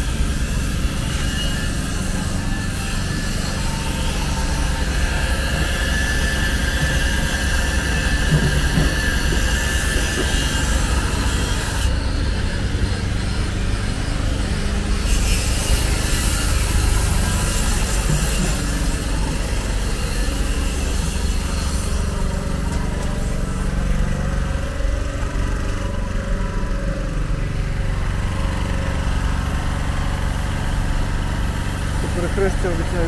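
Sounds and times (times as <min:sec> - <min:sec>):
angle grinder cutting metal: 0:00.1 - 0:22.5.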